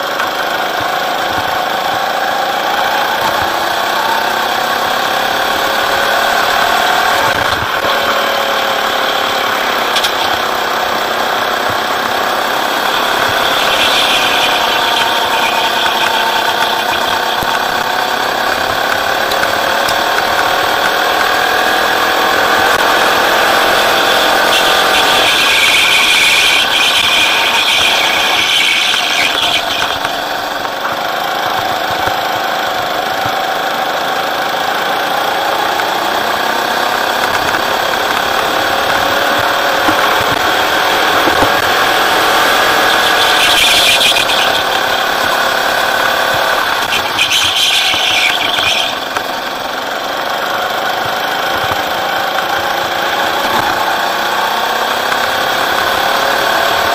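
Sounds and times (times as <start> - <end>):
go-kart engine revving: 0.0 - 56.9.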